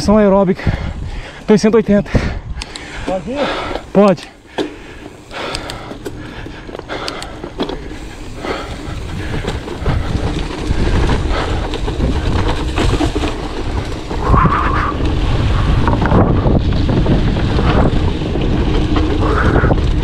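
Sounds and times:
bike clicks and rattles: 0.0 - 20.0
bike tyres rumbling on dirt: 0.0 - 20.0
wind on microphone: 0.6 - 4.0, 5.2 - 20.0.

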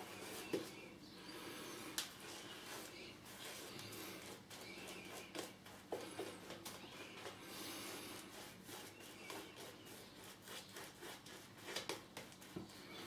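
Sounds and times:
shaving brush swishing lather: 7.9 - 12.5.

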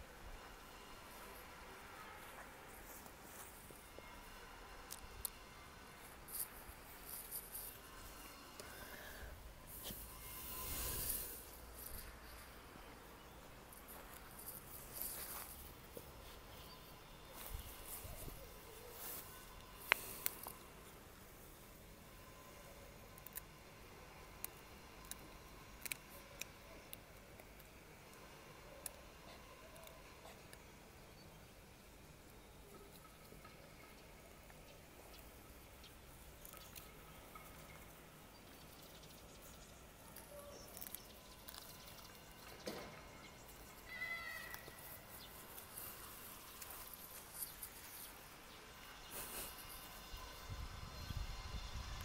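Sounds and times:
faint scuffling in grass: 2.0 - 4.3, 6.0 - 20.6, 43.4 - 50.0
teeth clicking on wooden stick: 24.4 - 27.7, 36.4 - 37.0.

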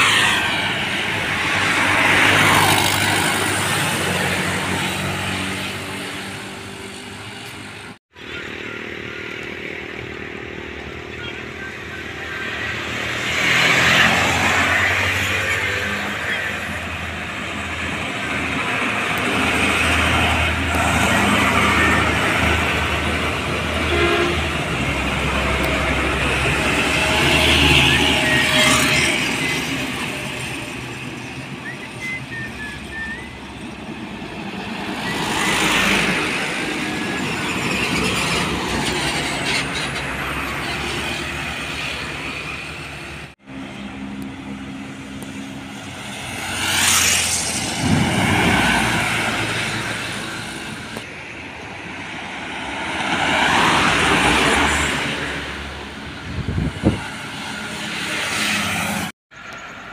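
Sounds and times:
motorcycles passing: 0.0 - 38.6, 39.2 - 51.1
distant road traffic: 0.0 - 59.9
truck passing: 0.0 - 59.9
horn toot: 23.8 - 24.7.

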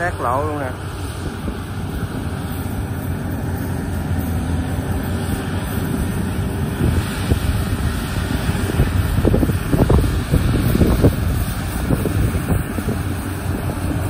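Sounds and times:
combine harvester engine drone: 0.0 - 14.0.

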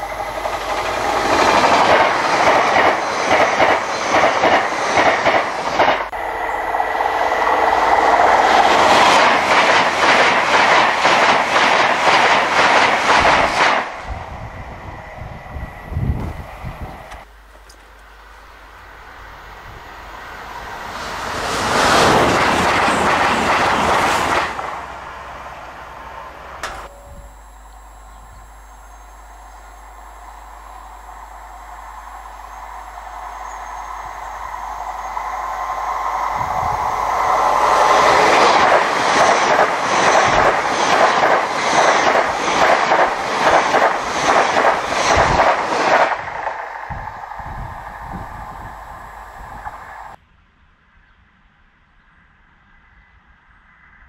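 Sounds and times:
train wheels clattering: 0.0 - 6.1, 20.8 - 24.9
express train rushing past: 0.0 - 17.4, 18.0 - 50.2.

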